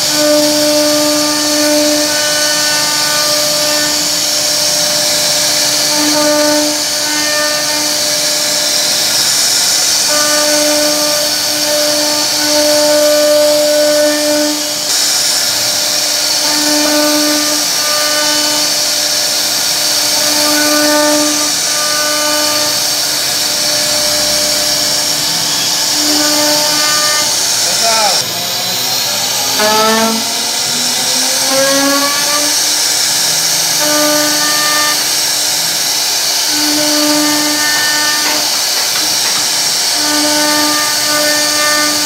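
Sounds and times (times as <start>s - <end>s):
wood router whining and cutting: 0.0s - 42.0s.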